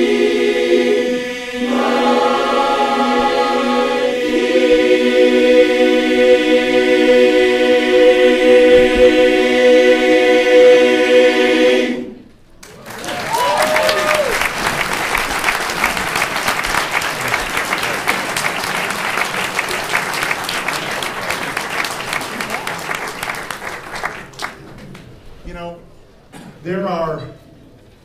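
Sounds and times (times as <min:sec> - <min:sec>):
men's chorus singing a cappella: 0:00.0 - 0:12.2.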